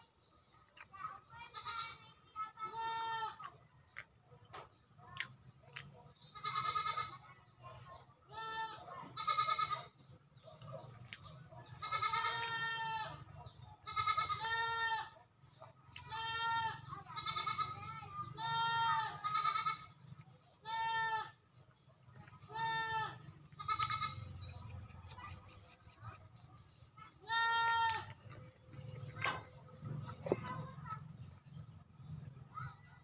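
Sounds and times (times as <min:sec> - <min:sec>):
goat bleating: 0:02.6 - 0:03.4, 0:06.4 - 0:07.2, 0:08.3 - 0:09.9, 0:11.8 - 0:13.2, 0:13.9 - 0:15.2, 0:16.0 - 0:17.8, 0:18.4 - 0:20.0, 0:20.6 - 0:21.4, 0:22.4 - 0:24.4, 0:27.2 - 0:28.2.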